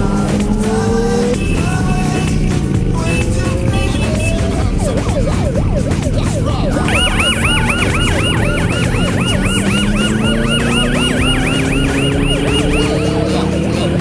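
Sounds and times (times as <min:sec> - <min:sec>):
motorcycle engine revving up: 0:00.0 - 0:14.0
motorcycle engines running: 0:00.0 - 0:14.0
siren yelping: 0:03.8 - 0:14.0.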